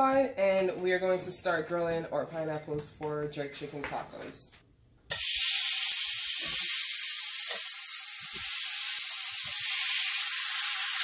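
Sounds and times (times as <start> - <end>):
fruit sizzling in a pan: 5.1 - 11.0.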